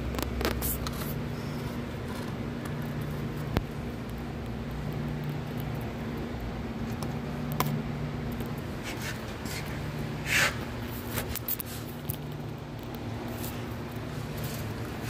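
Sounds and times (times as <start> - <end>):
steady low hum: 0.0 - 15.0
short scrape: 10.2 - 10.6.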